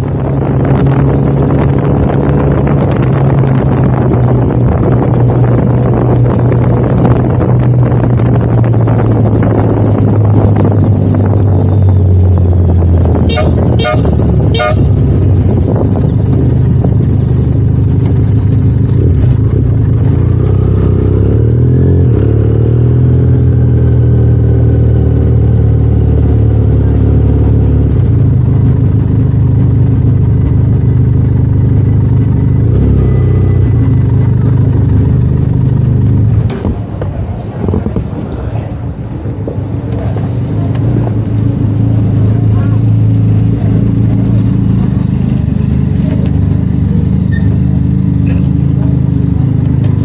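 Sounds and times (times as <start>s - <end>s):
wind rush: 0.0s - 17.6s, 35.7s - 42.4s
motorcycle engine running: 0.0s - 50.0s
motorcycle horn toots: 13.2s - 15.2s.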